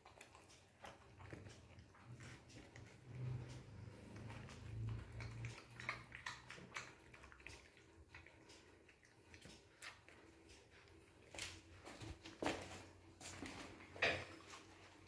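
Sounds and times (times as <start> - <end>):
dog eating dry kibble: 0.0 - 15.0.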